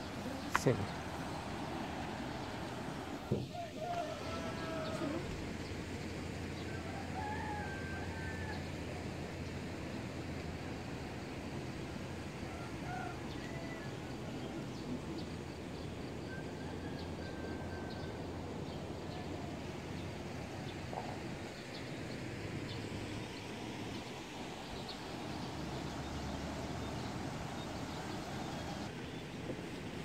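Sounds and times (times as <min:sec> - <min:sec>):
outdoor background noise: 0:00.0 - 0:30.0.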